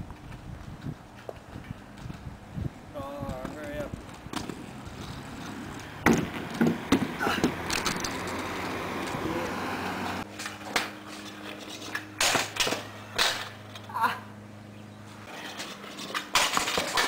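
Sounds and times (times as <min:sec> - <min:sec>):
scooter rolling over pavement: 0:00.1 - 0:13.9, 0:15.1 - 0:17.0
scooter clacking on ground: 0:03.1 - 0:09.5, 0:15.2 - 0:17.0.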